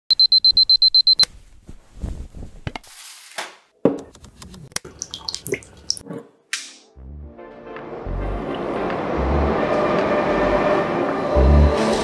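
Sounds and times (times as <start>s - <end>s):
alarm clock beeping rapidly: 0.1s - 1.2s
soft rustling: 1.3s - 2.6s.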